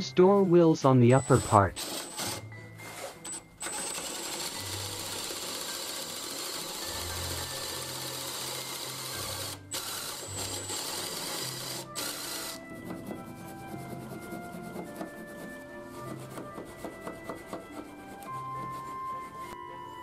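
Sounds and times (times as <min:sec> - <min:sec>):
cordless drill boring into wood: 0:01.1 - 0:12.7.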